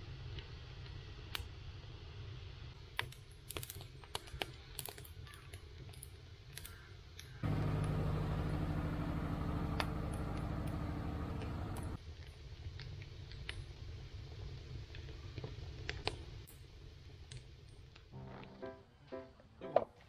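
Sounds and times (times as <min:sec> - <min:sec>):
firewood crackling and popping: 0:02.9 - 0:18.1
steady low hum: 0:07.4 - 0:12.0.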